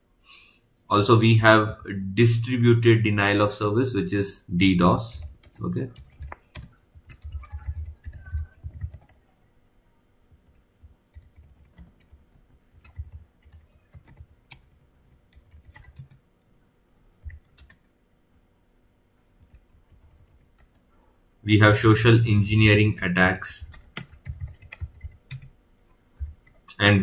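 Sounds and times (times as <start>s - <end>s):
computer keyboard typing: 5.1s - 9.2s, 10.3s - 16.2s, 17.2s - 17.9s, 19.4s - 20.9s, 23.6s - 26.8s.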